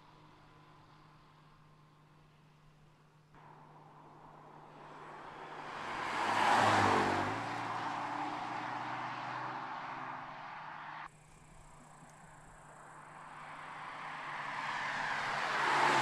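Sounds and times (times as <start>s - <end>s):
car passing at speed: 3.4s - 11.1s, 12.2s - 16.0s.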